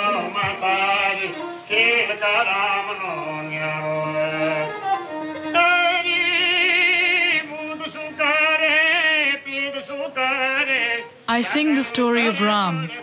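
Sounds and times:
bowed string instrument: 0.0 - 13.0
man singing with vibrato: 0.0 - 13.0.

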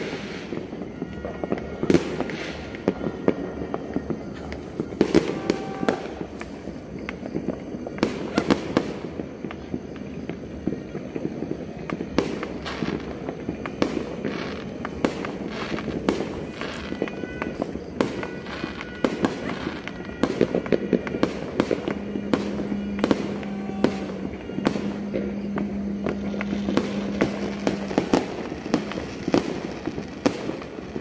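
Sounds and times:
fireworks and firecrackers: 0.0 - 31.0
steady low tone: 19.9 - 31.0.

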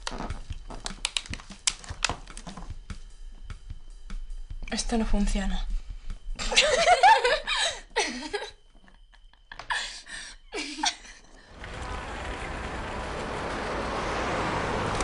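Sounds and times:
girls laughing: 6.4 - 9.8, 10.5 - 11.3
outdoor traffic noise: 11.5 - 15.0.

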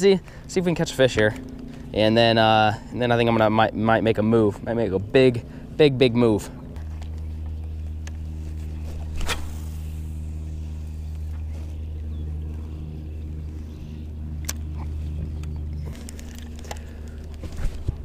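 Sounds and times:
electric trolling motor humming: 0.0 - 18.0.

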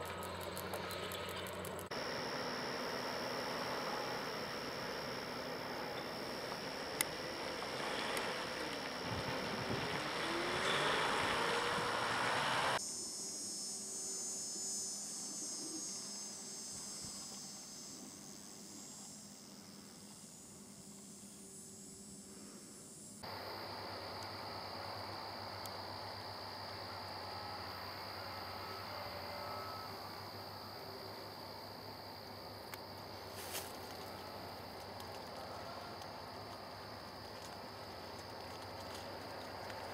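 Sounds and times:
low hum: 0.0 - 12.8
truck engine running: 0.0 - 12.8
insect drone like crickets: 0.0 - 39.9
outdoor hiss: 1.9 - 15.4, 19.1 - 39.9.

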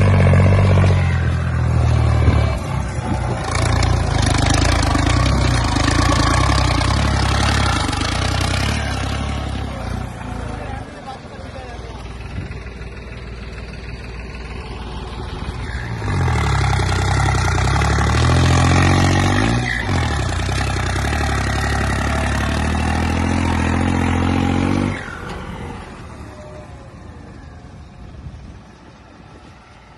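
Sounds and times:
tractor diesel engine: 0.0 - 29.9.

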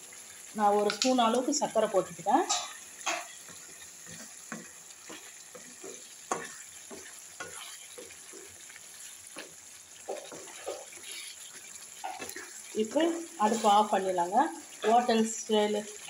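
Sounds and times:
gravy simmering: 0.0 - 16.0
spatula scraping pan: 2.3 - 14.0.

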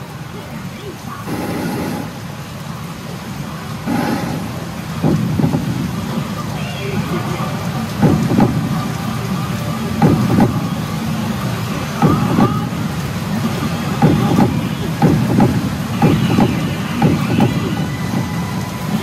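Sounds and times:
roar of gaming machines: 1.2 - 3.2, 3.8 - 6.3
machine sound effect thumps: 1.3 - 2.4, 3.9 - 6.2, 8.0 - 8.8, 10.0 - 10.7, 12.0 - 12.7, 14.0 - 18.4.

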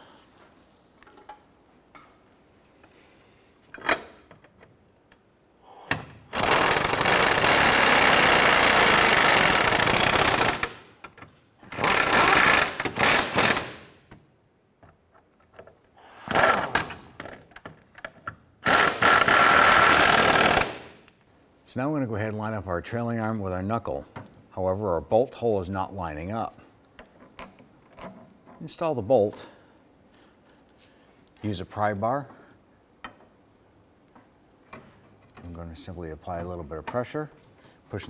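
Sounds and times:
impact wrench running: 6.3 - 10.9, 11.6 - 13.8, 18.6 - 20.9.

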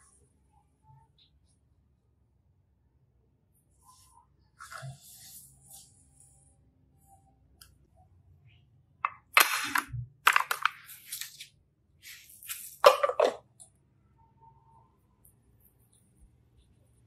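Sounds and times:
plastic cubes clicking and clattering: 9.0 - 11.5, 12.4 - 13.7.

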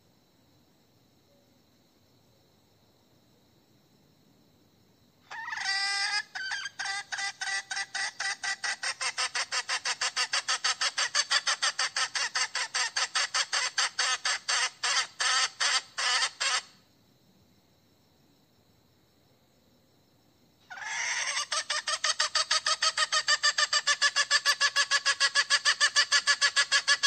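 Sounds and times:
hen clucking: 5.3 - 16.7, 20.7 - 27.0.

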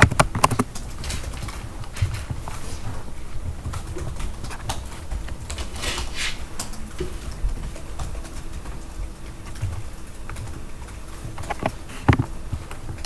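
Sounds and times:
laptop keyboard typing: 0.0 - 13.0
short rustle: 5.6 - 6.5.

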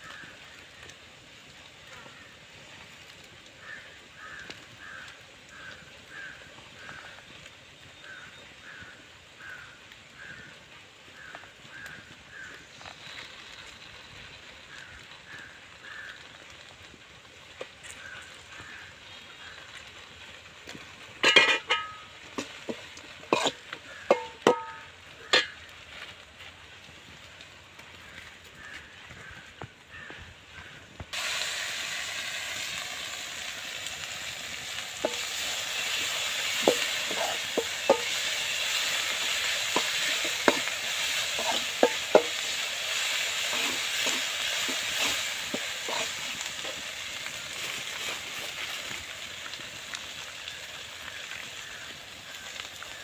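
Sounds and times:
ladle clanking against metal bowl: 21.2 - 22.5.

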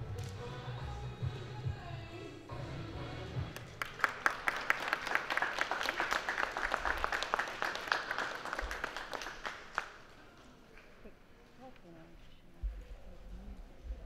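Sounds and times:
audience applauding: 3.5 - 10.2.

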